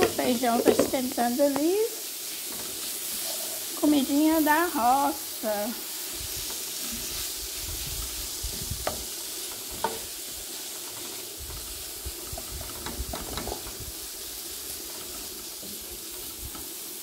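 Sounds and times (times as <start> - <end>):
spatula scraping vegetables: 0.0 - 16.9
vegetables sizzling in pan: 0.0 - 17.0.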